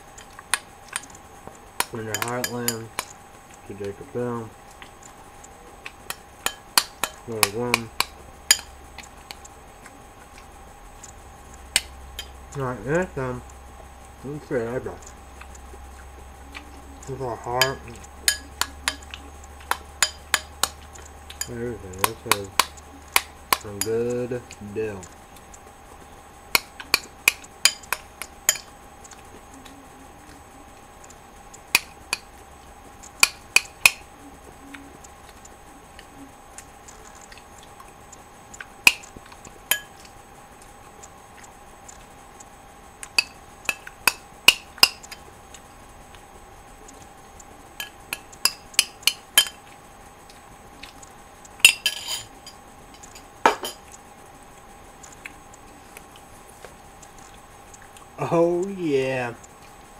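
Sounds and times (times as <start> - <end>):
faint steady hum: 0.0 - 59.9
spoon clinking against bowl: 2.1 - 2.8, 47.8 - 49.6, 51.6 - 52.3.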